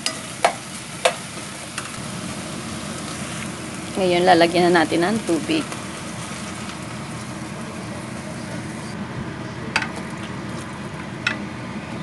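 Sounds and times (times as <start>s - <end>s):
sizzling in pan: 0.0s - 9.0s.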